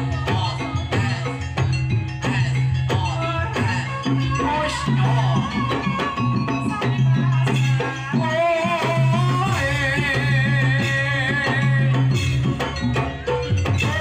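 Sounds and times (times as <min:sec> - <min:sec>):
woman singing with vibrato: 0:00.0 - 0:01.6, 0:02.2 - 0:12.6, 0:13.7 - 0:14.0
drums and percussion: 0:00.0 - 0:14.0.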